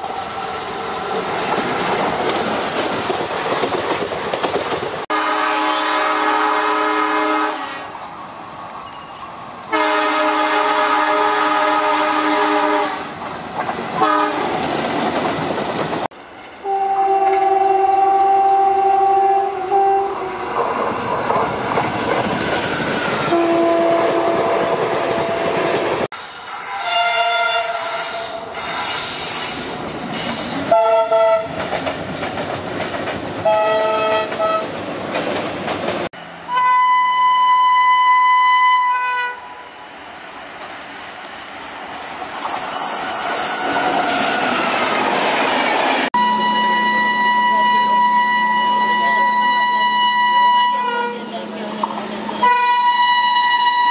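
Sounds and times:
train wheels clattering: 0.0 - 5.1, 28.6 - 33.5
locomotive horn blasts: 5.1 - 7.9, 9.7 - 13.1, 14.0 - 14.5, 16.6 - 20.3, 23.3 - 25.9, 26.8 - 28.5, 30.7 - 31.5, 33.4 - 34.6, 36.5 - 39.6, 46.2 - 53.9.

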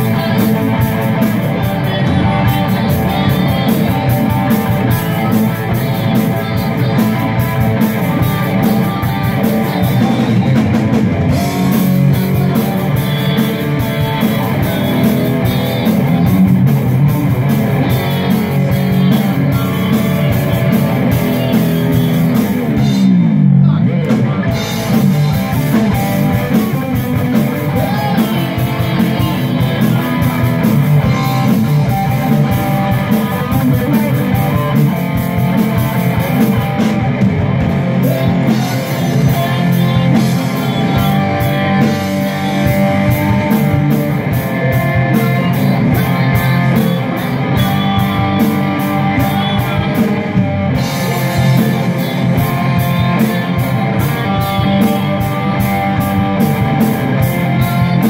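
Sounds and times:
bass guitar: 0.0 - 58.0
drum kit beat: 0.0 - 58.0
electric guitars: 0.0 - 58.0
lead singer over a pa: 26.2 - 31.3.

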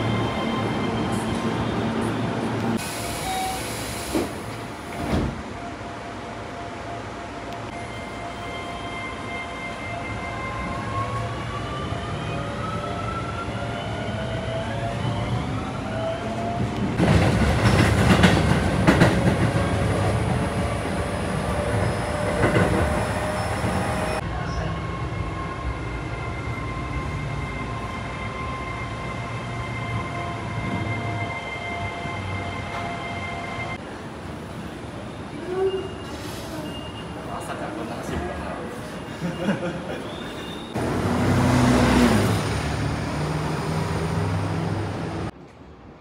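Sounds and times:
train rushing noise: 14.5 - 35.3, 36.1 - 46.0.

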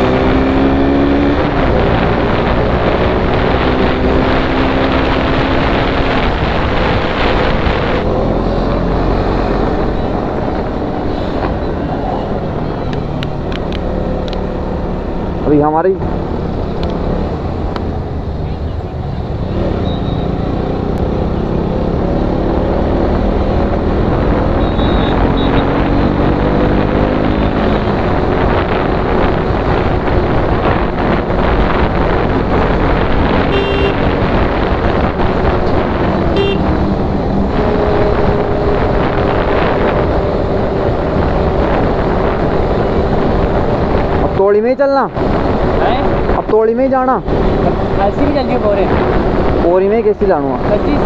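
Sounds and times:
horn beeps: 19.8 - 20.4, 24.5 - 25.8, 33.5 - 34.1, 36.3 - 36.8.

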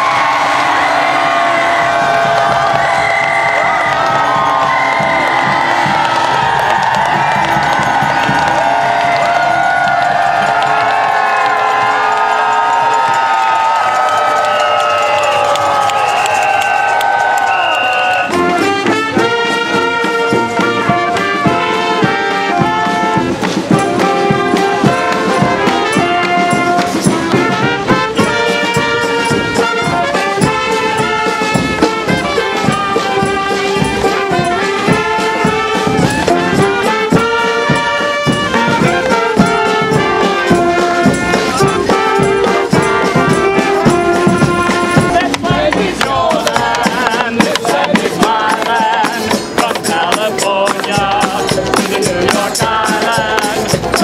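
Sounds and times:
brass band music: 0.0 - 54.0.

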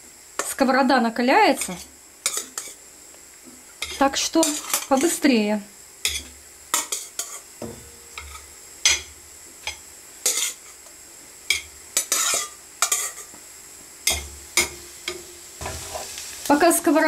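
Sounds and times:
meatballs sizzling in oil: 0.0 - 17.0
utensil scraping a pan: 3.8 - 5.2, 8.2 - 10.8, 11.5 - 13.3, 14.1 - 16.3.

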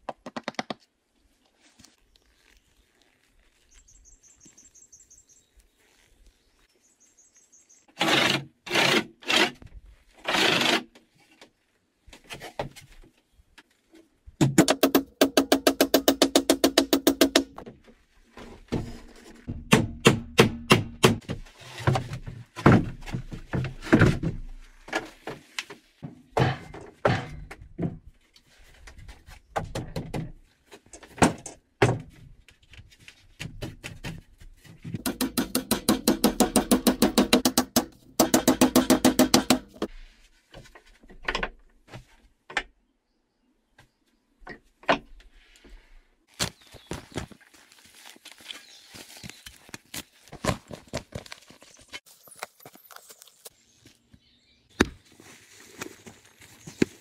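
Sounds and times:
handsaw cutting a board: 8.0 - 9.6
hammer striking wood: 19.6 - 21.3, 35.0 - 39.9.

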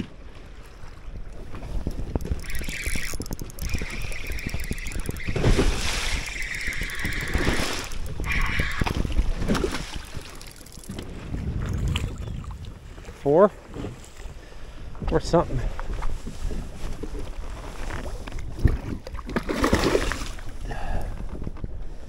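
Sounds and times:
water slapping boat hull: 0.0 - 14.3
wind buffeting microphone: 0.0 - 19.2
fishing reel whirring: 1.6 - 11.1.

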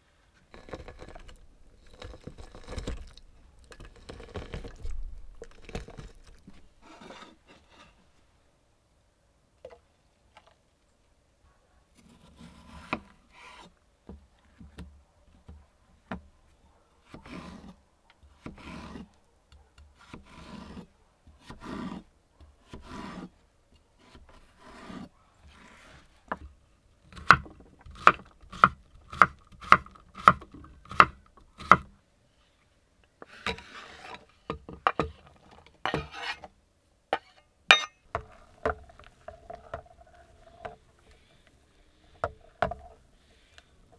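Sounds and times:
scraping on cutting board: 6.8 - 8.0, 17.2 - 17.8, 18.4 - 19.1, 20.1 - 22.1, 22.7 - 23.3, 24.0 - 26.1, 33.2 - 34.3, 35.8 - 36.5.

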